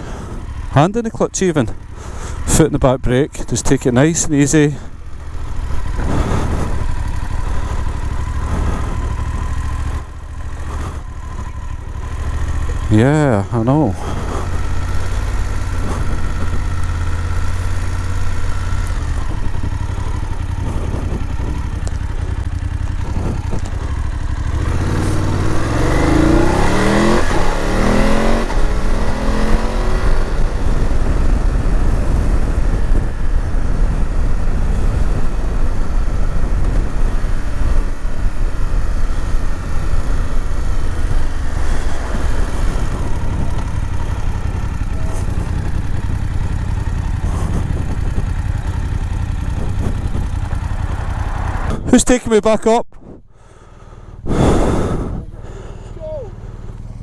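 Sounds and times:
motorcycle engine running: 0:00.0 - 0:57.0
wind rumble on microphone: 0:19.1 - 0:24.2, 0:29.6 - 0:40.4, 0:42.0 - 0:50.8.

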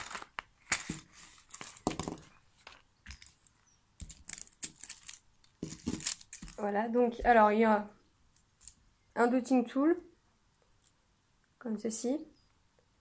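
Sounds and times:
brushes clicking and rattling: 0:00.0 - 0:06.6.

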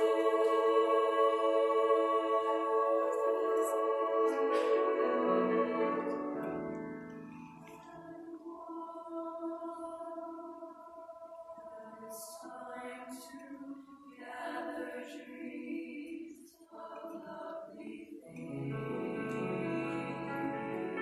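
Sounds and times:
girls' choir singing: 0:00.0 - 0:21.0.

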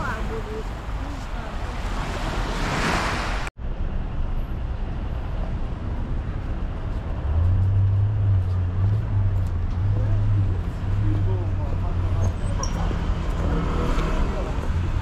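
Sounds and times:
surf washing on beach: 0:00.0 - 0:03.5
traffic rumble: 0:00.0 - 0:15.0
vehicle engine droning: 0:03.6 - 0:15.0.

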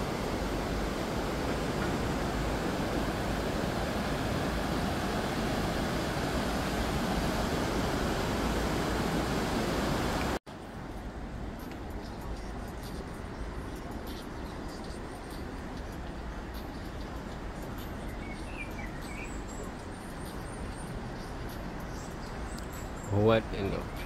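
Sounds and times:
fast-flowing river water: 0:00.0 - 0:10.6.

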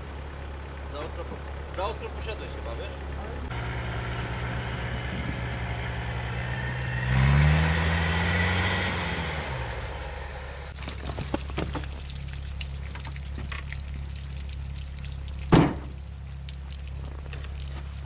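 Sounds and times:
low engine idle: 0:00.0 - 0:06.2
engine revving: 0:03.2 - 0:10.8
ticks and drips: 0:10.8 - 0:18.0.

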